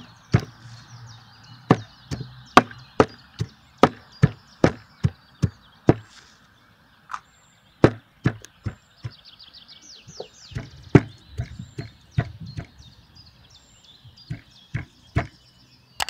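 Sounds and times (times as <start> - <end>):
cleaver chopping on wooden block: 0.3 - 0.6, 1.7 - 6.1, 7.8 - 9.2, 10.5 - 12.8, 14.3 - 15.4.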